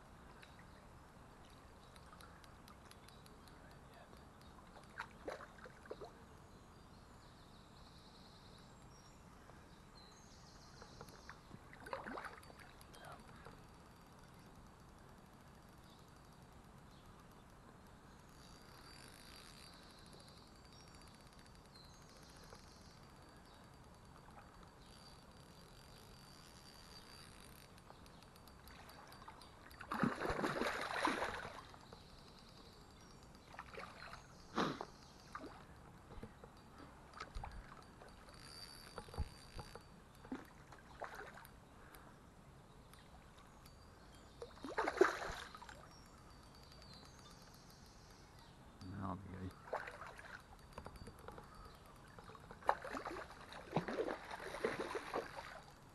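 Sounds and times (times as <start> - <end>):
river flowing: 28.5 - 31.8
fish splashing in water: 29.8 - 31.8, 44.6 - 45.8, 52.2 - 55.6.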